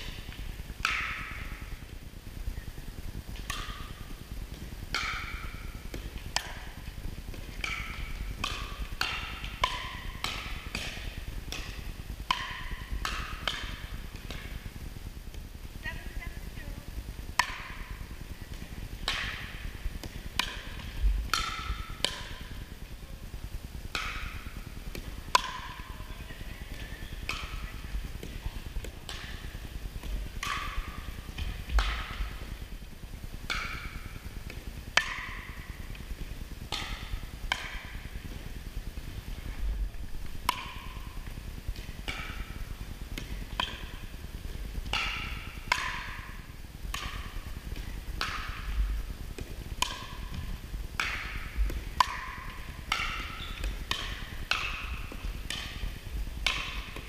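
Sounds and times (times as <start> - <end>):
paddles striking plastic ball: 3.4 - 14.7, 23.9 - 32.7, 40.0 - 44.0, 44.8 - 57.0.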